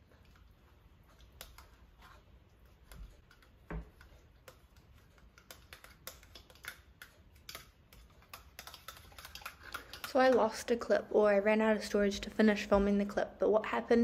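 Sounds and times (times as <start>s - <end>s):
utensil clicking against bowl: 1.1s - 1.8s, 2.6s - 10.8s.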